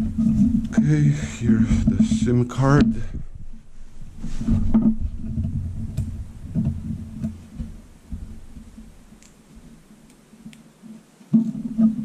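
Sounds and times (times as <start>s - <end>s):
low dull thumps: 0.0s - 9.9s
faint clicks: 10.0s - 12.0s.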